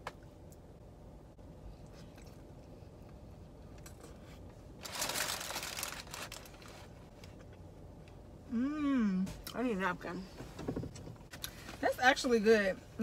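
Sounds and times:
quiet eating: 1.6 - 4.6
paper crinkling: 4.8 - 7.0.

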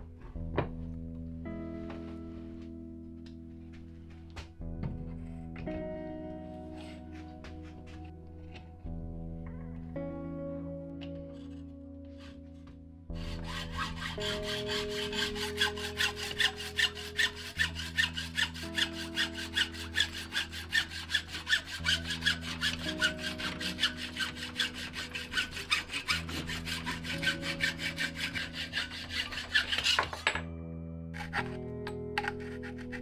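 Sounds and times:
hacksaw cutting metal tube: 13.2 - 30.4, 31.2 - 33.0.

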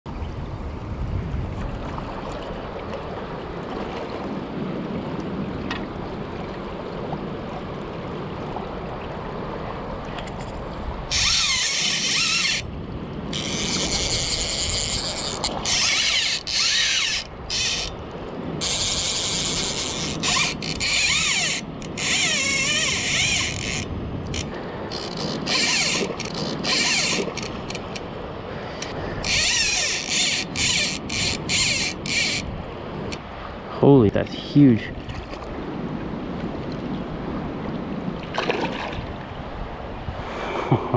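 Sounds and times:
river current rushing: 1.6 - 40.7
fishing reel screaming: 11.1 - 12.7, 13.3 - 18.0, 18.6 - 28.0, 29.2 - 32.5.

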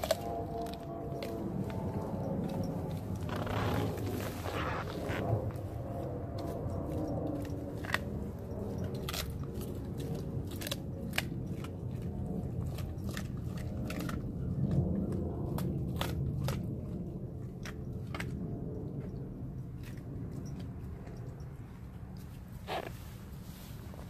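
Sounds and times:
dog chewing wetly: 0.0 - 22.9
sharp crunches: 3.2 - 5.6.

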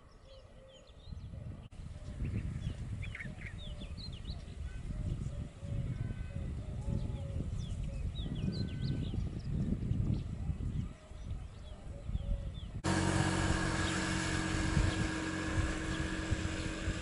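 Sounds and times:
low repeated bird calls: 0.0 - 17.0
wind rumble on microphone: 0.1 - 17.0
small birds chirping: 13.6 - 17.0.

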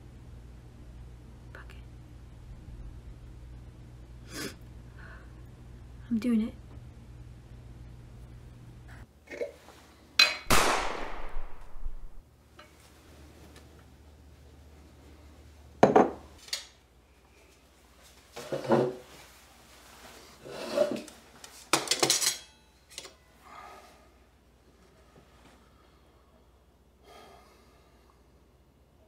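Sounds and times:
pistol shot: 10.5 - 12.2
knife and fork scraping plate: 20.4 - 21.1.

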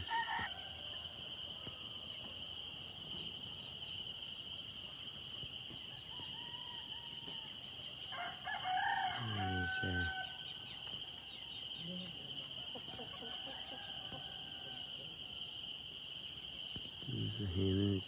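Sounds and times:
rooster crowing: 0.0 - 1.2, 6.0 - 10.6, 12.7 - 15.3
night insects chorus: 0.0 - 18.0.

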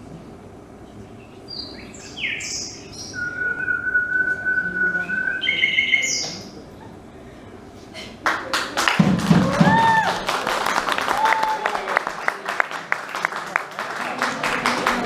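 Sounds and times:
bird chirps and whistles: 1.5 - 6.5.

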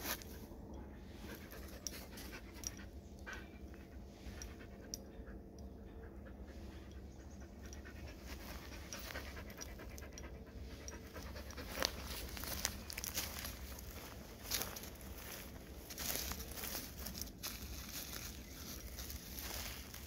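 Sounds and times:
dog panting: 1.2 - 15.6.

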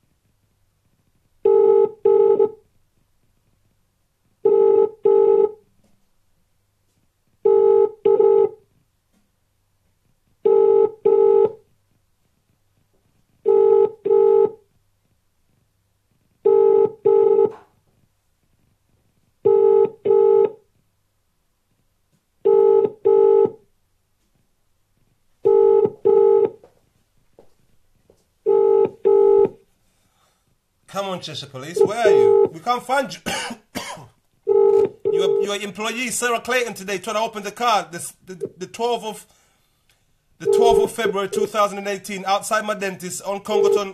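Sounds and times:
telephone ringing tone: 1.4 - 2.6, 4.4 - 5.6, 7.4 - 8.6, 10.4 - 11.6, 13.5 - 14.6, 16.5 - 17.6, 19.5 - 20.6, 22.4 - 23.6, 25.4 - 26.6, 28.4 - 29.6, 31.7 - 32.6, 34.5 - 35.6, 40.4 - 41.5, 43.5 - 43.9.

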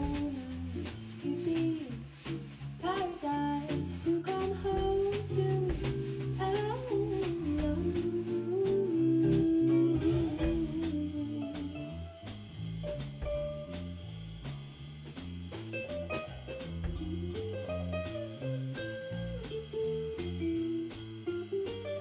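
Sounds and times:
woman singing: 0.0 - 2.0, 2.8 - 12.2
acoustic guitar: 0.0 - 14.0, 15.6 - 22.0
drum kit: 0.0 - 22.0
walking electric bass: 0.0 - 22.0.

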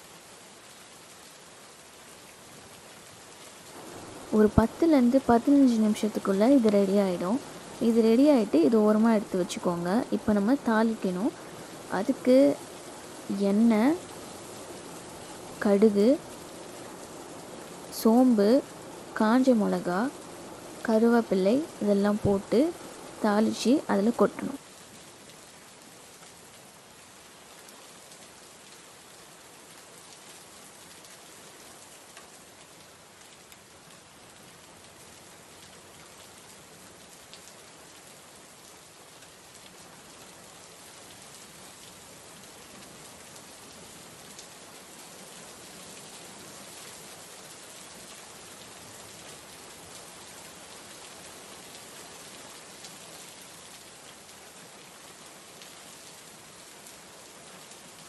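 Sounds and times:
faint crackle: 24.2 - 58.0.

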